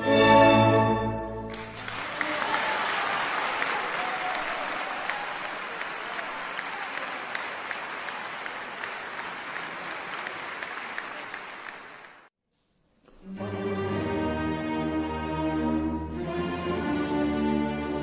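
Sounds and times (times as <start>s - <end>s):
audience applauding: 1.5s - 12.3s.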